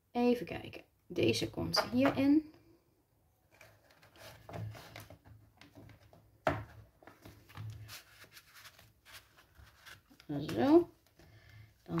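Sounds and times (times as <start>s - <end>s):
paper rustling and sliding: 7.2s - 10.8s.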